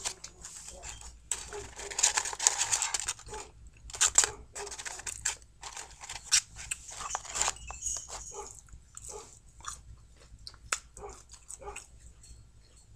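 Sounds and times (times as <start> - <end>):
paper carton crinkling: 0.0 - 9.2.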